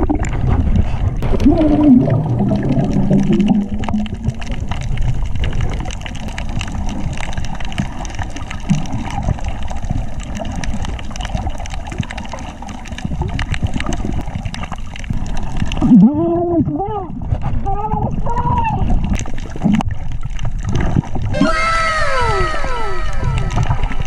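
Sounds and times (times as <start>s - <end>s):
water splashing and sloshing: 0.0s - 24.0s.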